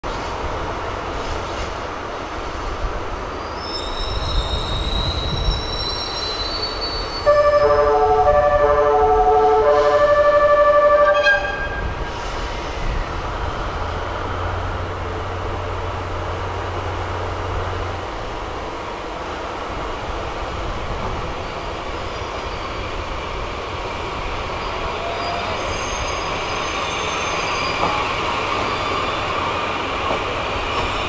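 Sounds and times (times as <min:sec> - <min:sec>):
train horn playing a melody: 0:07.2 - 0:12.0.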